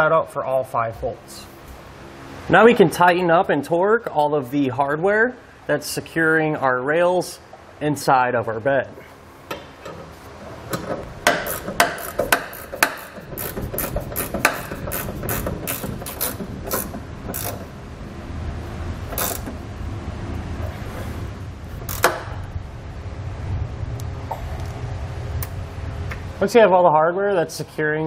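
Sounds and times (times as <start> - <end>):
socket ratchet clicking: 10.7 - 17.7, 19.1 - 19.5, 21.8 - 22.2.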